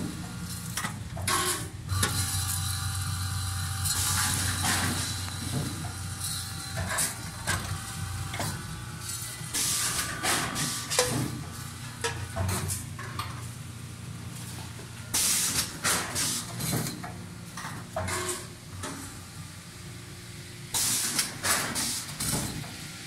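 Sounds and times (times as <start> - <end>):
packaging machine humming: 0.0 - 13.1.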